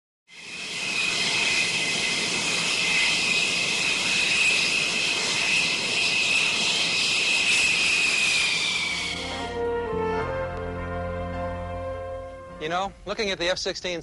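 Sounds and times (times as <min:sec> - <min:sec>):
jet engine whine: 0:00.3 - 0:10.8.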